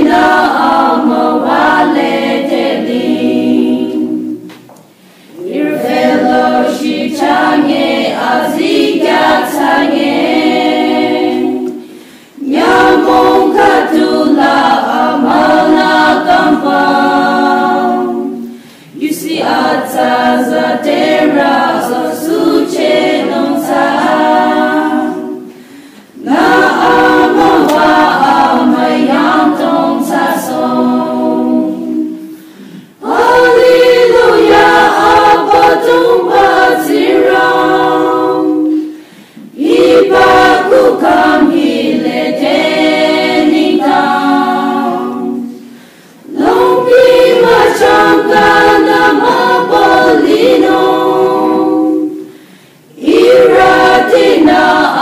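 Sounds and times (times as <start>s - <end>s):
women's choir singing a hymn: 0.0s - 55.0s.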